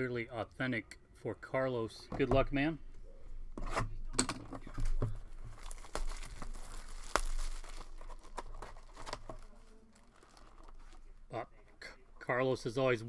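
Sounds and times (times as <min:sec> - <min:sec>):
paper rustling: 0:04.7 - 0:11.1
shrink wrap crinkling and tearing: 0:04.8 - 0:11.2.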